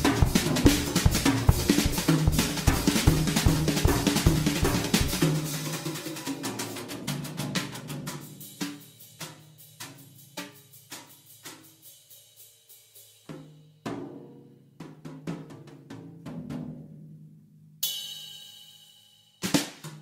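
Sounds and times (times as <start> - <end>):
steady drum beat: 0.0 - 14.0.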